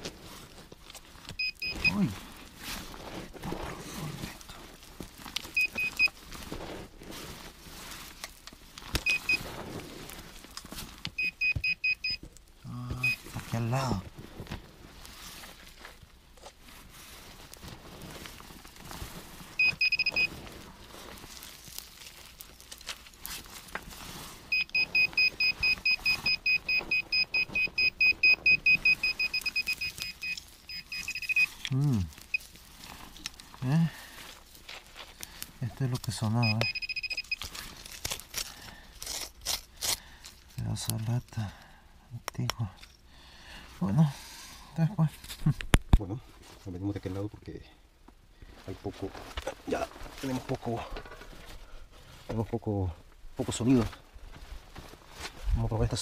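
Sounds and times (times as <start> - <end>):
dirt scraped and flicked: 0.0 - 11.1, 13.0 - 36.3
metal detector beeping: 1.4 - 2.1, 5.6 - 6.2, 9.0 - 9.5, 11.2 - 12.2, 13.0 - 13.3, 19.6 - 20.3, 24.5 - 32.5, 36.4 - 37.4.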